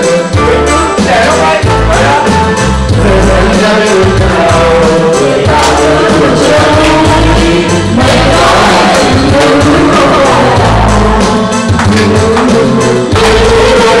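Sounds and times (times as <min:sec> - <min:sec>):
person singing: 0:00.0 - 0:14.0
repeating bass beat: 0:00.0 - 0:14.0.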